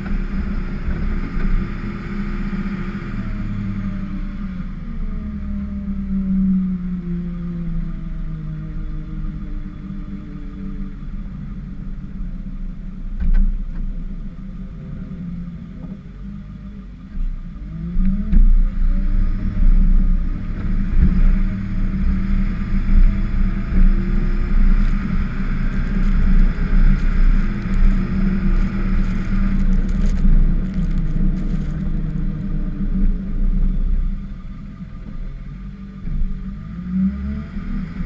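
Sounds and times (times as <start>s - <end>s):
truck engine under load: 19.4s - 35.4s
snow scraping against plow blade: 22.6s - 32.6s.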